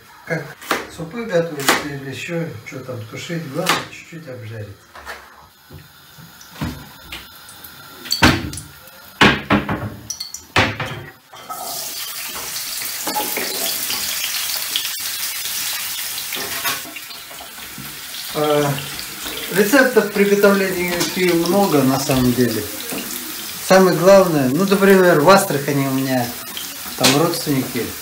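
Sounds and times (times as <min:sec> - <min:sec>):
carrots sizzling in hot oil: 0:05.5 - 0:09.5, 0:10.1 - 0:28.0
pan and bottle clattering: 0:09.2 - 0:14.2, 0:16.3 - 0:17.9, 0:18.8 - 0:23.4, 0:24.8 - 0:27.8.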